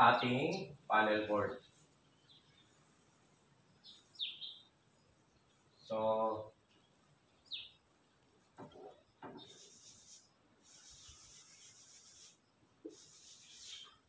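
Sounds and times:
eraser rubbing chalkboard: 9.4s - 14.0s.

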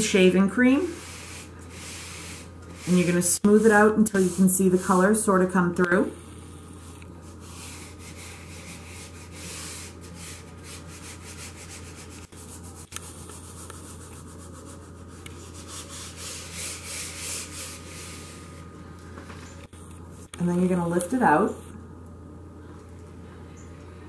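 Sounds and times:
steady low hum: 0.0s - 24.0s
gloved hands rubbing cloth: 6.6s - 18.7s.

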